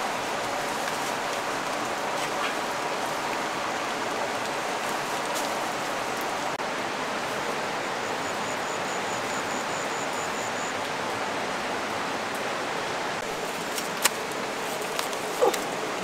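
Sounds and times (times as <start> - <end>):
running water rushing: 0.0 - 16.0.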